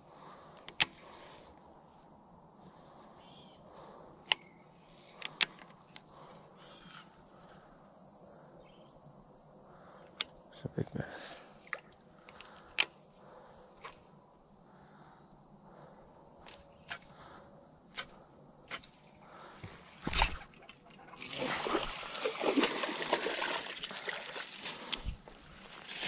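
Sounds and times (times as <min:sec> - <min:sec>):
insects chirring: 0:00.0 - 0:26.0
fish splashing at surface: 0:21.2 - 0:24.4.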